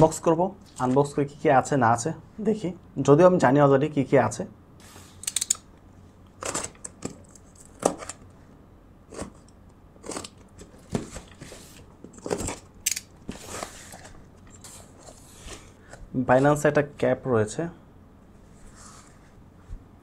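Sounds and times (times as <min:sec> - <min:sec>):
box cutter slitting tape: 0:09.1 - 0:10.6
box flaps rustling: 0:10.1 - 0:15.8.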